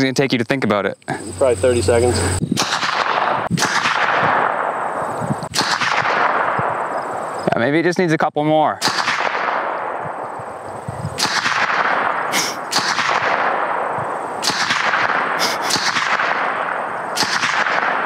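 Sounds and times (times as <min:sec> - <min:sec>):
gunshots echoing: 0:02.6 - 0:07.2, 0:08.8 - 0:10.4, 0:11.2 - 0:18.0.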